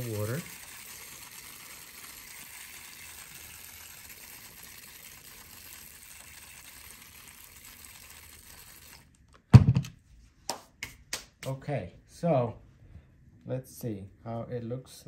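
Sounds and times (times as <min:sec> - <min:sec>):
hose nozzle spraying water: 0:00.0 - 0:09.0.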